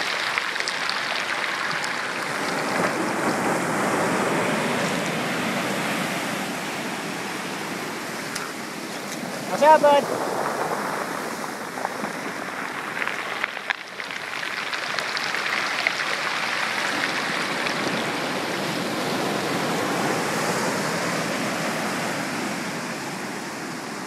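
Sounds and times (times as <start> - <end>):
pebbles clacking in surf: 0.0 - 5.3, 8.4 - 19.8
rush of ocean surf: 0.0 - 24.0.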